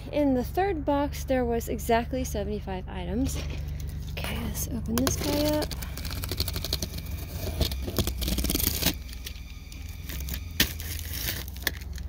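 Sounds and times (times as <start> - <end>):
cardboard scraping: 5.0 - 12.0
packing tape tearing: 5.0 - 12.0.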